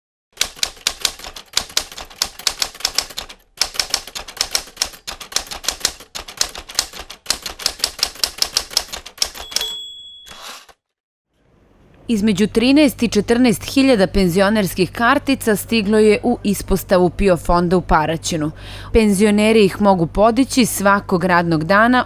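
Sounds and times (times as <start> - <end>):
typewriter keys clacking: 0.4 - 10.8
typewriter carriage bell ding: 9.2 - 10.7.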